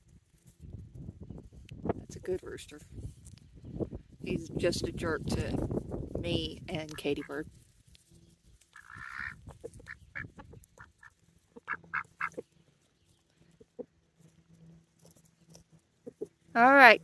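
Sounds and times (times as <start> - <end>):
ducks quacking softly: 8.8 - 12.5.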